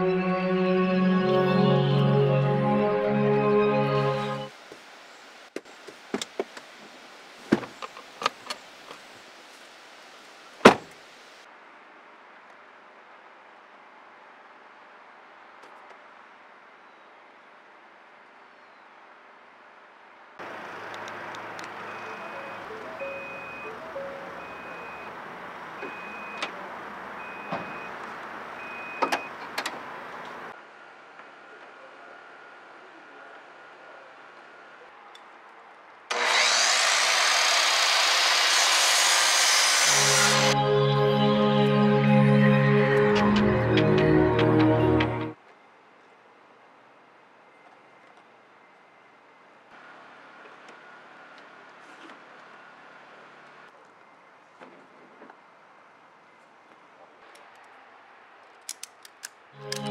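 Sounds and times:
high warning beeps: 21.8 - 25.1, 25.8 - 26.4, 27.2 - 27.9
clicks and knocks of latches: 58.6 - 59.9.

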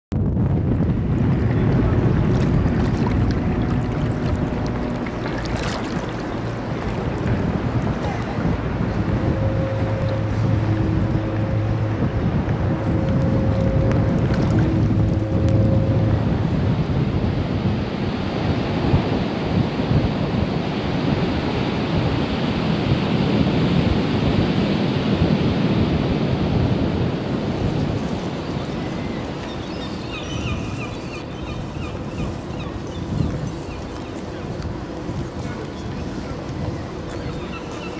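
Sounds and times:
ferry engine rumble: 0.1 - 18.4, 26.5 - 37.9
churning sea water: 0.1 - 37.9
wind buffeting microphone: 0.1 - 37.9.

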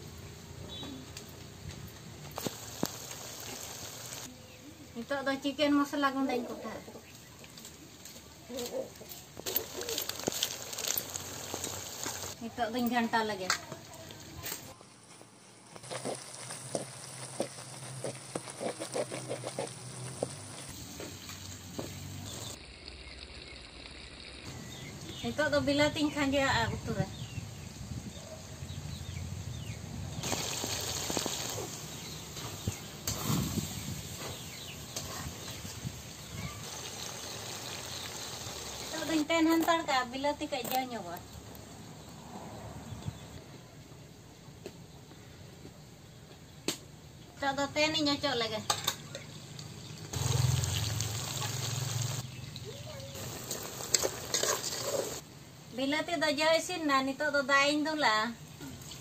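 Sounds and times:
tomatoes sizzling in hot oil: 2.4 - 4.3, 9.4 - 12.4, 15.6 - 26.2, 30.2 - 39.9, 48.7 - 55.2.

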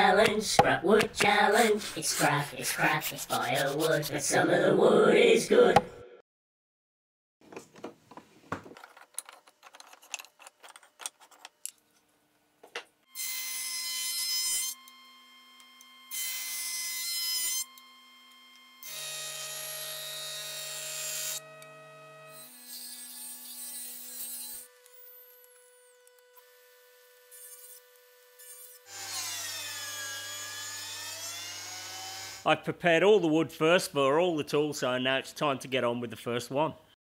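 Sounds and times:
power tools cutting wood: 13.1 - 32.5.

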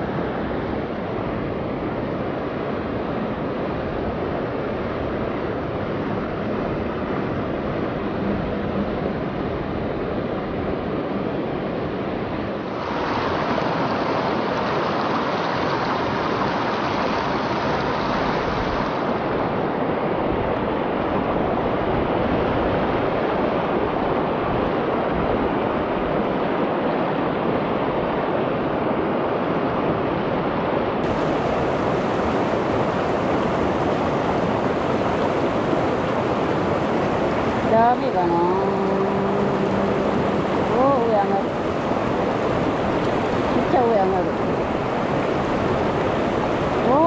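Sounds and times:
river water rushing: 12.6 - 21.3, 31.0 - 47.0.

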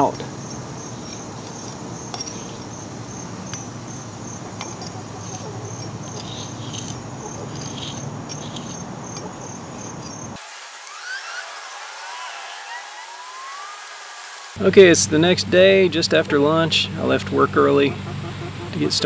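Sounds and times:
insects chirping: 0.0 - 14.6
brick jointer scraping mortar: 4.6 - 12.7.

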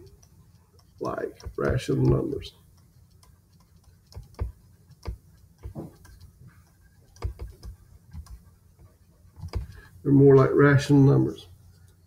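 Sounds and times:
stylus tapping on pen tablet: 0.1 - 6.4, 7.0 - 8.4, 9.4 - 9.8.

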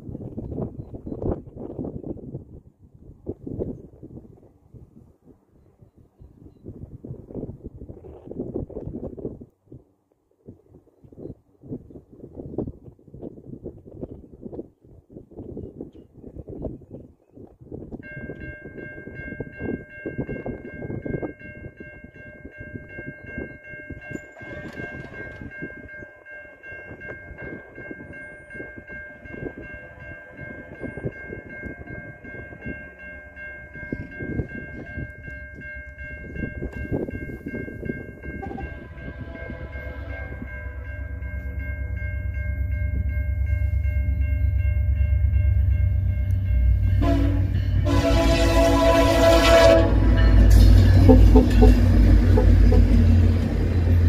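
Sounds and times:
level crossing bell ringing: 21.6 - 49.1
diesel locomotive rumble: 30.4 - 54.0.

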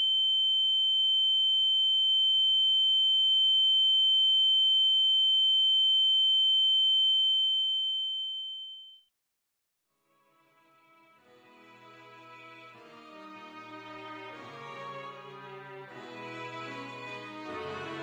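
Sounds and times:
high-pitched electronic ringing tone: 0.0 - 9.0.

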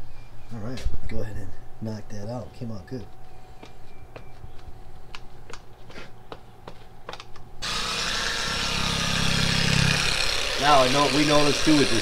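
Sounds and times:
electric polisher whirring: 7.6 - 12.0.

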